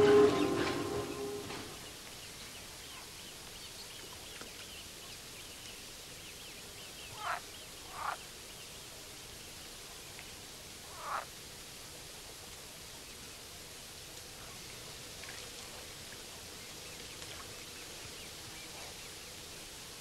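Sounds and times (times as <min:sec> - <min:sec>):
music: 0:00.0 - 0:01.8.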